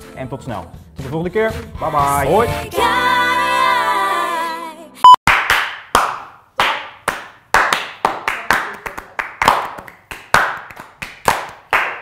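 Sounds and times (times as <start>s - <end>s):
men clapping hands: 5.3s - 12.0s.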